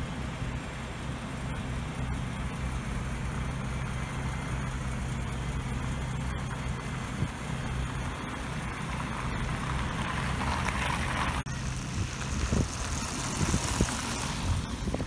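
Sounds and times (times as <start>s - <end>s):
vehicle passing: 7.9s - 15.0s
wind buffeting microphone: 10.0s - 15.0s.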